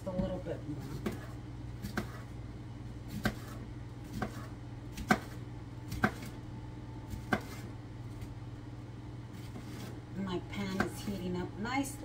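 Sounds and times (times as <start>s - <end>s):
knife chopping on cutting board: 0.9s - 2.3s, 3.1s - 6.4s, 7.1s - 7.7s.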